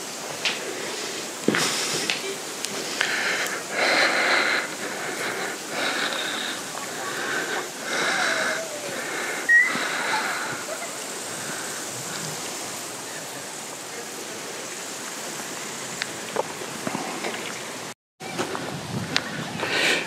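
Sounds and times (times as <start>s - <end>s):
outdoor background noise: 0.0s - 20.0s
faint voices talking: 1.9s - 15.2s.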